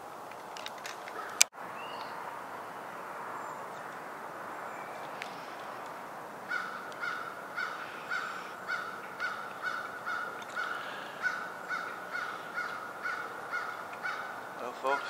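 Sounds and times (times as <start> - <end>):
crow cawing: 1.1 - 1.5, 6.4 - 15.0.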